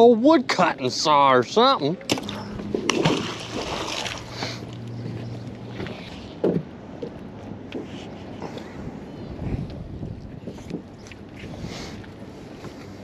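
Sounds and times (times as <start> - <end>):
water noise: 2.0 - 7.6
wind on microphone: 8.7 - 12.0.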